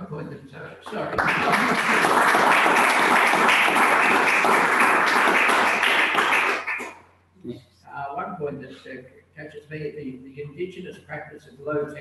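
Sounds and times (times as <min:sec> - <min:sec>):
audience applause: 0:00.9 - 0:06.9.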